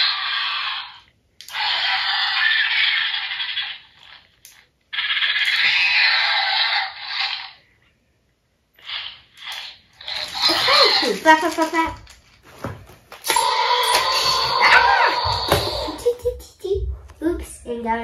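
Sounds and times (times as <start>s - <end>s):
toy electronic sound effect: 8.8s - 11.2s, 13.2s - 16.0s.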